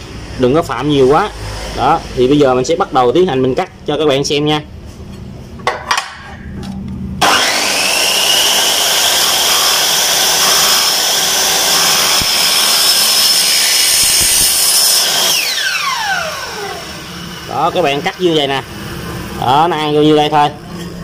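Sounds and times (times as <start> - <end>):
miter saw cutting aluminium: 7.2 - 19.6.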